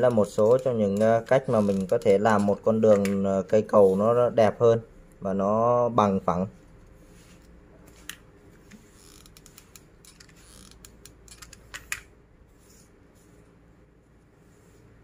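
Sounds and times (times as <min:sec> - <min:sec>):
plastic straws clicking and creaking: 0:00.0 - 0:03.3, 0:09.0 - 0:12.1.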